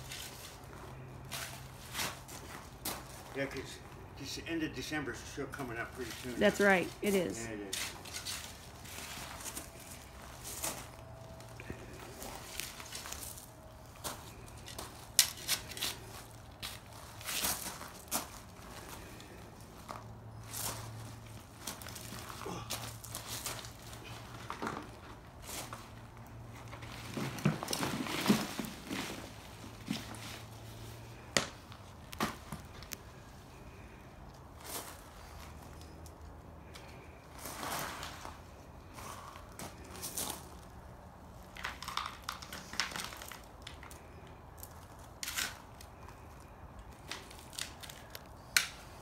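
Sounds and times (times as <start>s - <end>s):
shovel scraping in dirt and gravel: 7.4s - 10.9s, 45.2s - 45.8s
shovel scraping into dirt and gravel: 7.7s - 9.5s.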